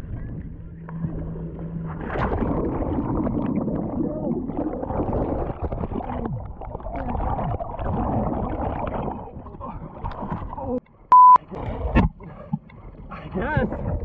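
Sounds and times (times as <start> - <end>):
underwater churning and bubbling: 0.0 - 14.0.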